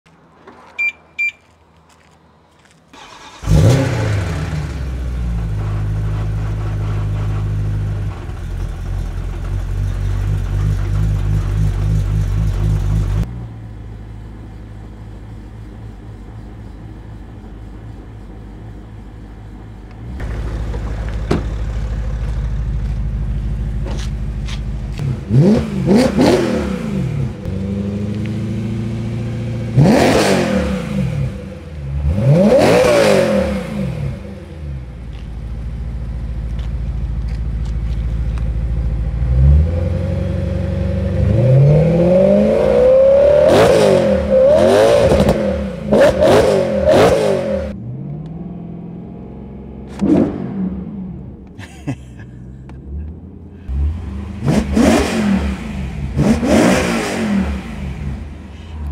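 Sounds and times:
engine revving: 3.0 - 8.2, 23.7 - 35.2, 39.0 - 51.5, 52.7 - 58.9
engine lumpy idle: 4.8 - 25.0, 34.8 - 39.3.

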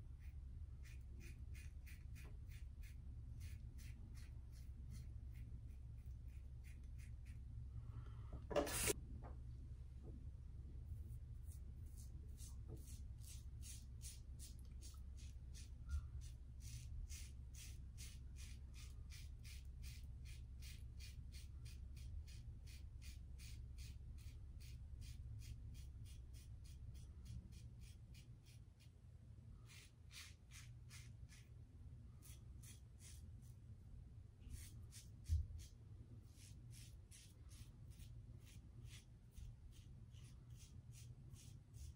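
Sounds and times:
low hum: 0.0 - 19.3.

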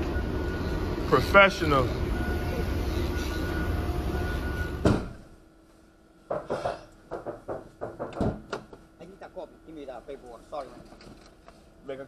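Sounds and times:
forklift engine rumble and whine: 0.0 - 5.4.

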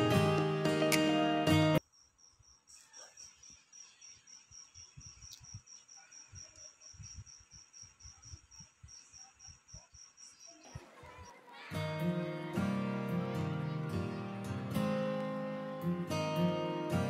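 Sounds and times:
cricket chirping: 1.8 - 11.4.

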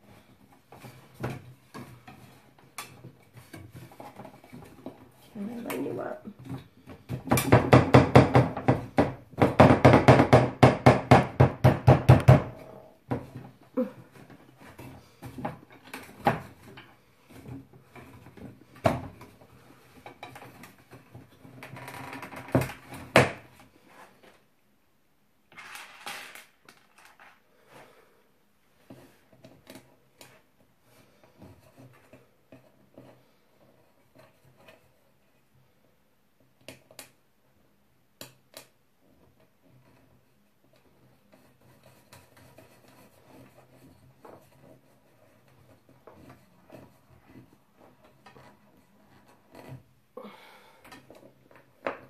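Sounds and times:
wooden slats knocking and clicking: 7.0 - 13.4.

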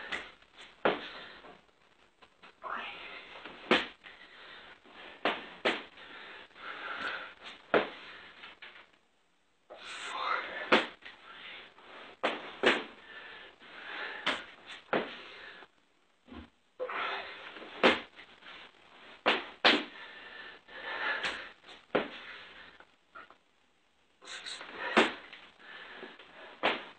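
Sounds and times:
person panting heavily: 5.9 - 8.4, 19.8 - 22.8, 24.3 - 26.6.

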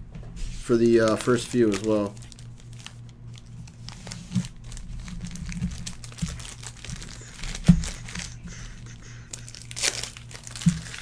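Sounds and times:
cards being flipped through: 0.6 - 8.7.

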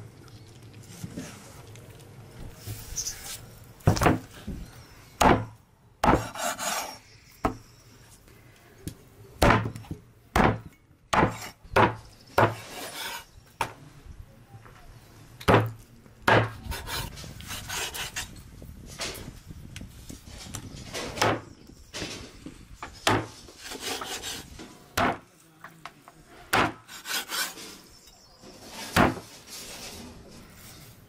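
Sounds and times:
cleaver chopping on wooden board: 5.2 - 6.6, 9.4 - 12.8, 15.5 - 17.1, 23.0 - 23.4, 25.0 - 25.2, 26.5 - 26.8
cleaver scraping board: 6.0 - 7.0, 11.2 - 13.3, 16.3 - 18.3, 23.0 - 24.7, 26.5 - 30.3.

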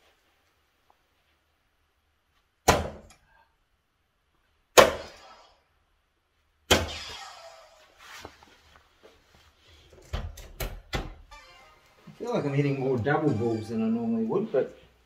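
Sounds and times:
darts hitting electronic dartboard: 2.7 - 3.1.

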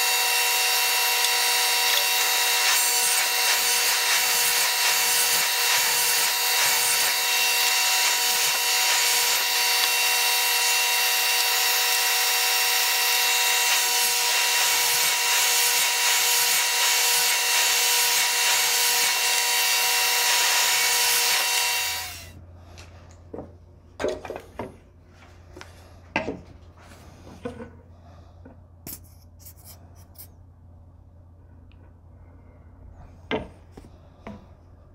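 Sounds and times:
power saw motor whining: 0.0 - 22.4.

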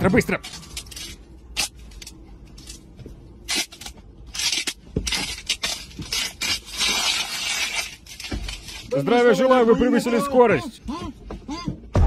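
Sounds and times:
duct tape ripping: 0.3 - 2.8, 3.4 - 9.0.

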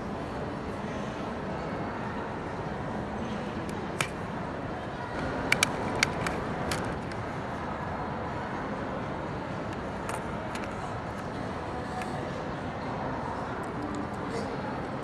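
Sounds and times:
plastic clicks and taps: 5.5 - 7.2.

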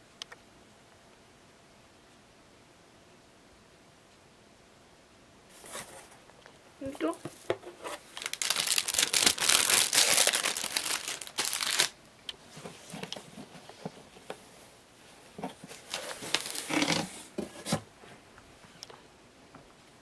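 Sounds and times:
packing material crinkling: 7.9 - 12.0, 15.7 - 17.1.

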